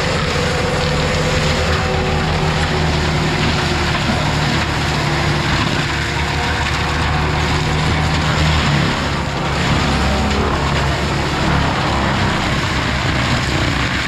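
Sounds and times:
heavy equipment engine running: 0.0 - 14.0.

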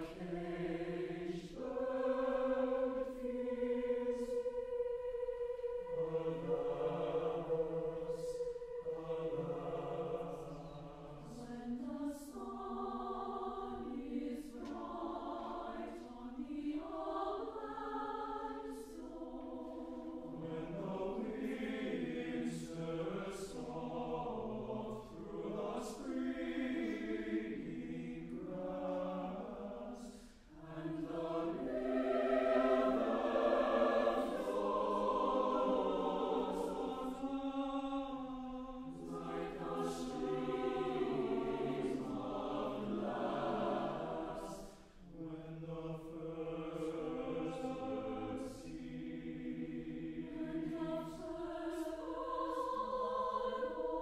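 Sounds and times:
choir singing: 0.0 - 54.0.

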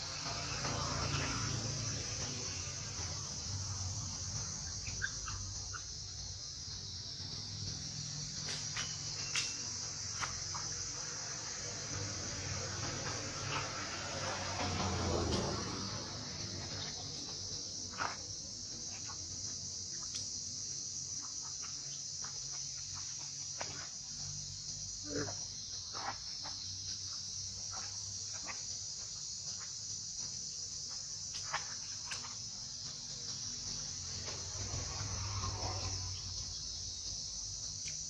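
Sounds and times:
insect chorus drone: 0.0 - 38.0
faint chirps and clicks: 8.4 - 10.7, 37.7 - 38.0.

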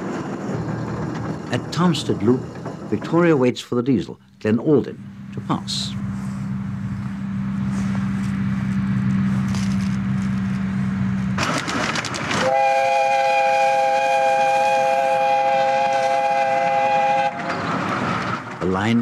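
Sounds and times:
low engine hum: 4.4 - 12.4
steam locomotive whistle: 12.4 - 17.7.

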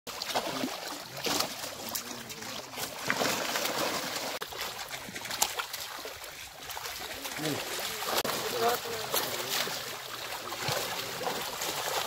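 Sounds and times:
fish thrashing in water: 0.1 - 12.0
people wading: 0.1 - 12.0.

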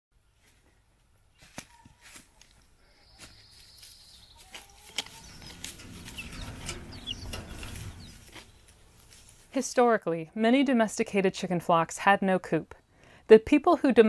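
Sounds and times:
chickens chirping: 2.8 - 9.4
clicks and rustling: 4.9 - 8.8.

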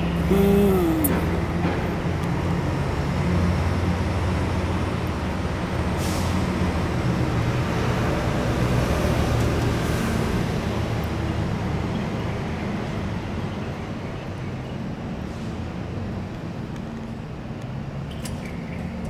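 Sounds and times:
short falling cry: 0.2 - 1.4.

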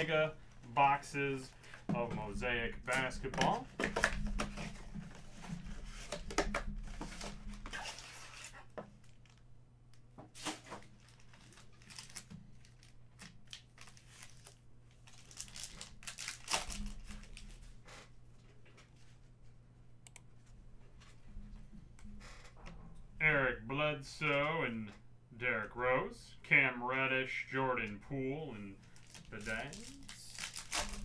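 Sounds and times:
foil packs crinkling and tearing: 5.7 - 9.4, 10.4 - 17.6, 28.8 - 31.0.

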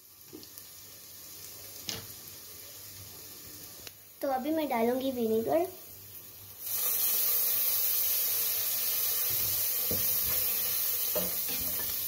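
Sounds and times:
sizzling hiss in frying pan: 0.0 - 12.0.

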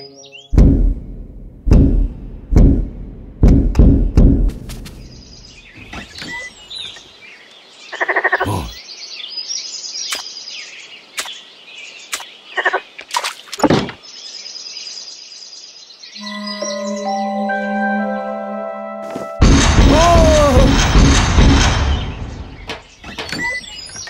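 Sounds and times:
birds chirping: 0.0 - 1.2, 2.5 - 18.4, 21.7 - 24.0
gate creaking open: 22.7 - 24.0.

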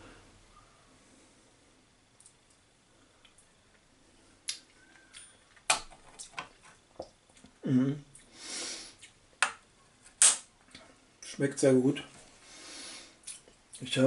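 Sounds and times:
short vocal sound: 7.6 - 8.1
breathy hiss: 7.7 - 9.1, 12.3 - 13.2.

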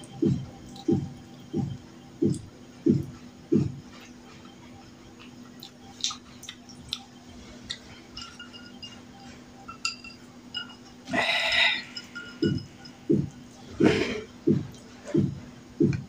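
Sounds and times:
glass and plate clinks: 8.1 - 13.0.

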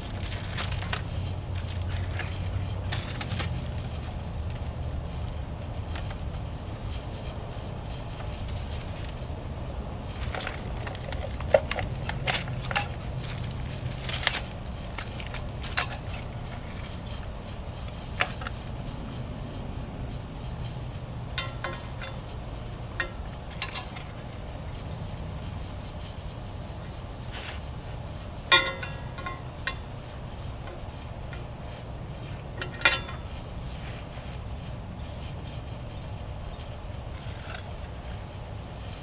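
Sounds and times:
low hum: 0.0 - 39.0
metal chain clinking: 0.1 - 4.7, 10.2 - 17.2, 21.4 - 25.4, 37.2 - 38.1.

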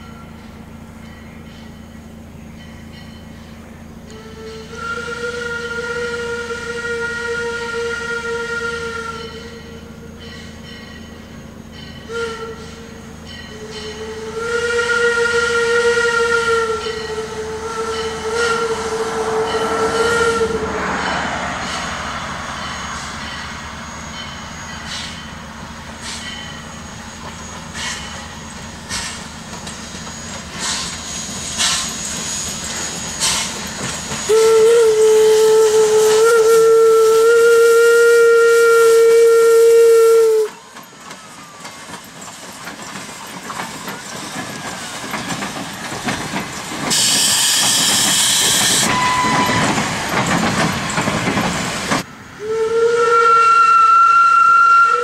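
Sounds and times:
steam locomotive whistle: 4.0 - 10.8, 11.9 - 42.0, 46.9 - 50.3, 52.3 - 55.0
steam train clicks and knocks: 24.2 - 38.5, 40.1 - 52.1.

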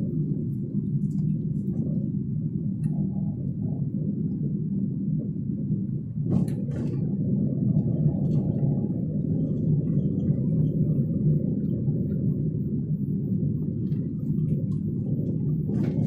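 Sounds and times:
car engine and road noise: 6.0 - 16.0.

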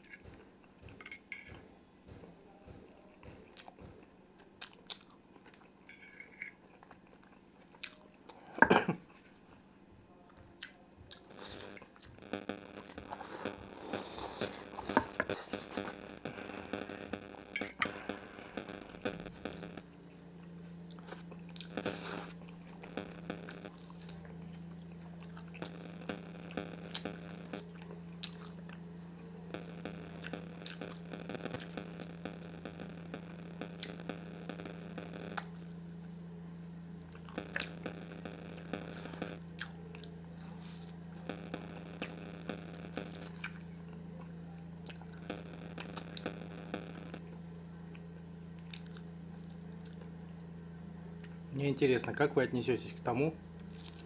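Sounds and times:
chewing and crunching food: 0.0 - 12.1, 23.7 - 25.6, 27.7 - 29.4, 39.4 - 41.3, 47.2 - 51.5, 53.6 - 54.0
steady low hum: 11.3 - 39.6, 40.2 - 43.6, 44.5 - 47.4.

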